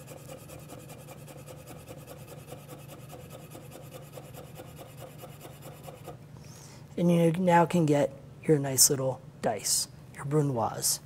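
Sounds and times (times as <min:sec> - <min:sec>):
knife chopping on cutting board: 0:00.1 - 0:06.2.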